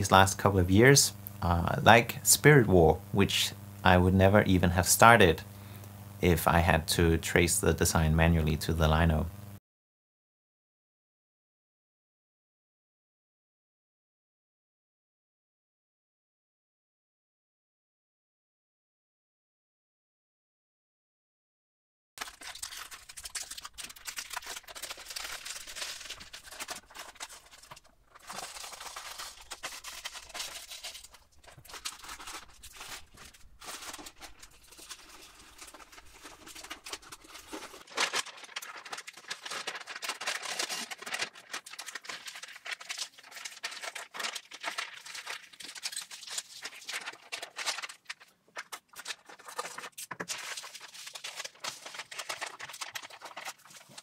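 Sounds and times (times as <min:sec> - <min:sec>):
paper rustling and crackling: 0:22.2 - 0:54.0.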